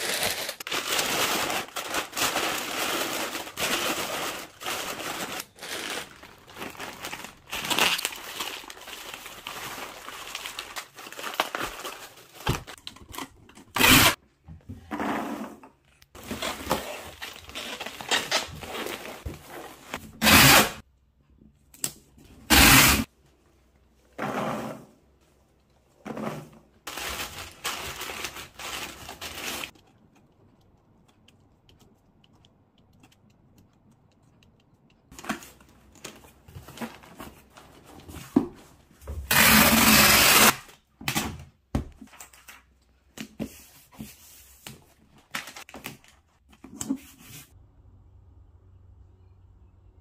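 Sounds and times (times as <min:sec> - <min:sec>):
packing peanuts rustling: 0:00.0 - 0:12.8, 0:26.9 - 0:29.8.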